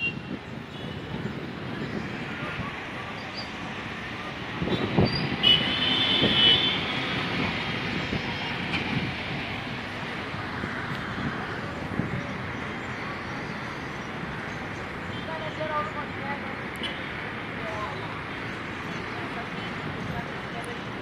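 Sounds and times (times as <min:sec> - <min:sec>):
road traffic: 0:00.0 - 0:21.0
vehicle horn: 0:04.7 - 0:06.9.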